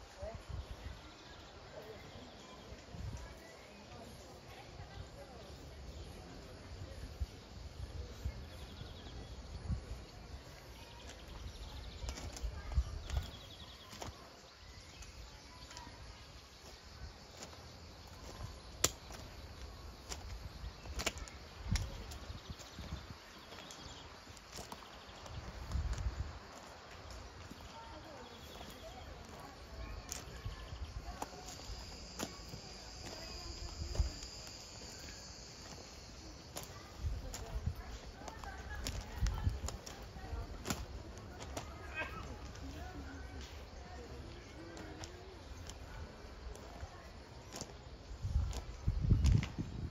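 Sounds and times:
faint chirping trills: 0.0s - 49.2s
high-pitched insect drone: 30.1s - 37.5s
low wind rumble on microphone: 48.0s - 49.9s.

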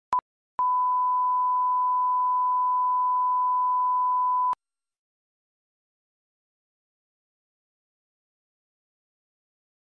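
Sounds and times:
test tone beep: 0.6s - 4.6s.

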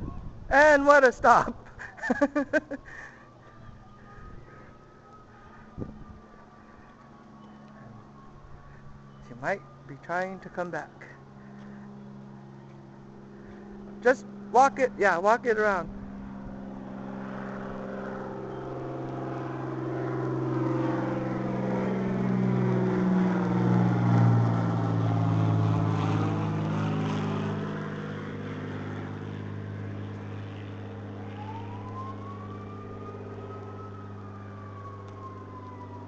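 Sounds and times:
vehicle engine passing by: 2.9s - 36.0s
faint rising and falling tone: 15.6s - 36.0s.

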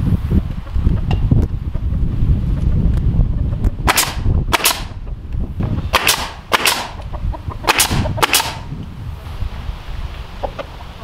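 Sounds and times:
wind rumble on microphone: 0.0s - 11.0s
nail gun firing: 3.8s - 5.0s, 5.9s - 7.0s, 7.7s - 8.7s.

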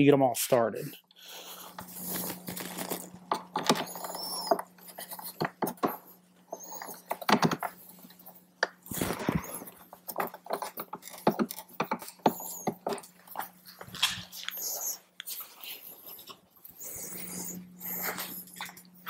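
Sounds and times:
steady low hum: 0.0s - 19.0s
short high squeaks: 3.8s - 5.4s, 6.5s - 7.3s, 8.9s - 9.8s, 10.6s - 13.0s, 14.2s - 15.1s
screws clicking and scraping into plastic: 10.1s - 13.1s.

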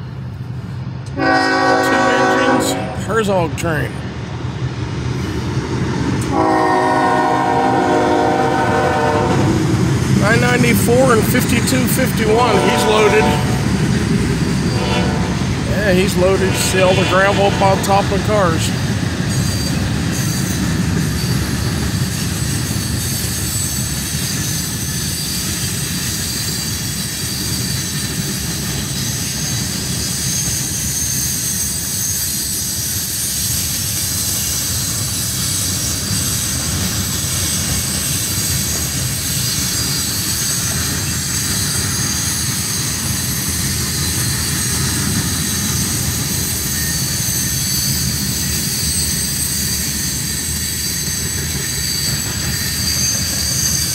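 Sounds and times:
train wheels rumbling on track: 0.0s - 53.9s
high-pitched wheel squealing: 37.2s - 53.9s.

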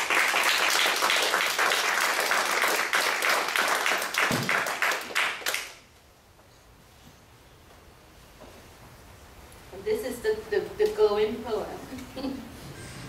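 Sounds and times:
small audience applauding: 0.0s - 5.9s.

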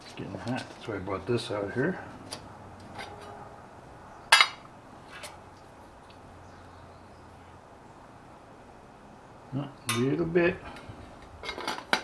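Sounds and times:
metal pot lid clanking: 4.3s - 4.6s.

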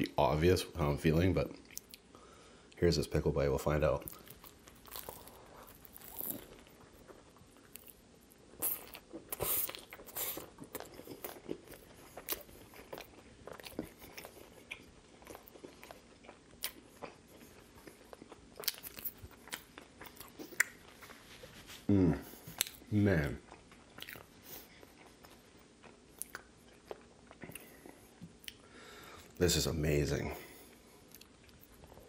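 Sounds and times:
crunching chews: 4.0s - 21.5s, 22.3s - 28.6s
biting and chewing sandwich: 4.0s - 28.6s.

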